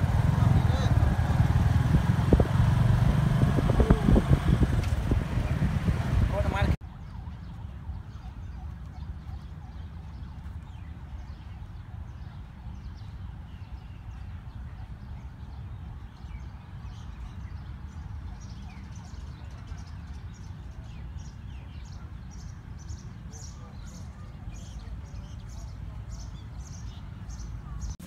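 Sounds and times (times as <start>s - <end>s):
steady low rumble: 0.0s - 6.8s
small birds chirping: 0.0s - 28.0s.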